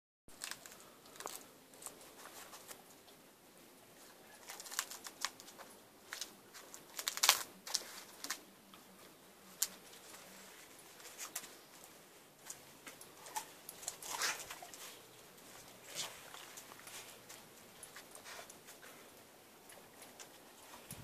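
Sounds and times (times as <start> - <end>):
dog gnawing a coconut: 4.2 - 8.5, 12.4 - 21.0.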